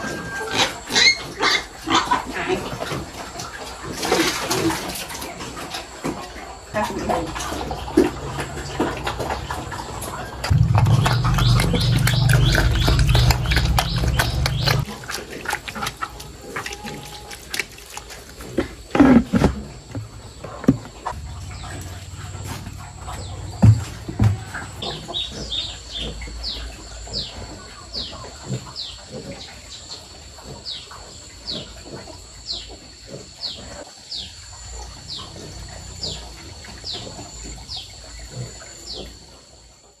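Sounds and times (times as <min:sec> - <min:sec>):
pig chewing and smacking: 0:00.0 - 0:19.9
pigs chomping and slurping: 0:00.0 - 0:40.0.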